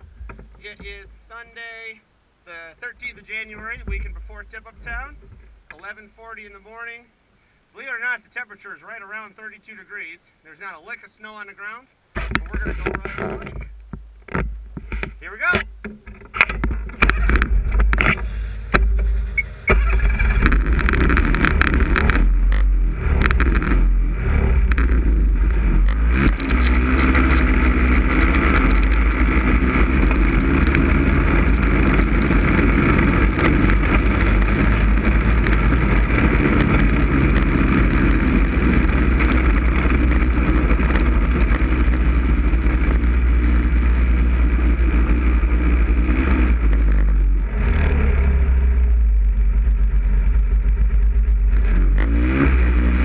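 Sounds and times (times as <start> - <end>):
deep rumble: 0.0 - 1.2, 16.4 - 53.0
snowmobile engine: 20.0 - 53.0.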